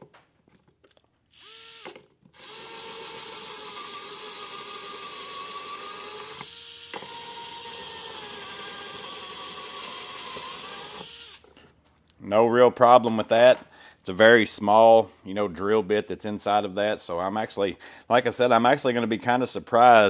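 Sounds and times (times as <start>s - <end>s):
electric screwdriver whining: 1.3s - 11.5s.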